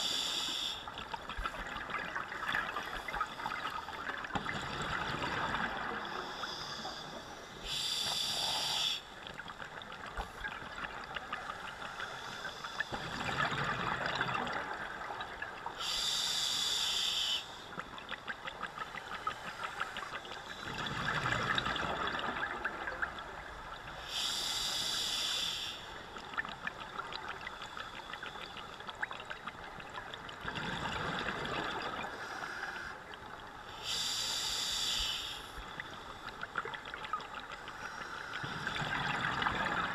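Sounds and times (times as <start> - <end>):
regulator hiss: 0.0 - 0.9, 6.2 - 9.2, 15.8 - 17.8, 24.0 - 26.0, 33.7 - 36.3
exhaled air bubbling: 1.0 - 6.9, 12.8 - 16.2, 20.0 - 24.4, 28.4 - 32.3, 35.6 - 39.9.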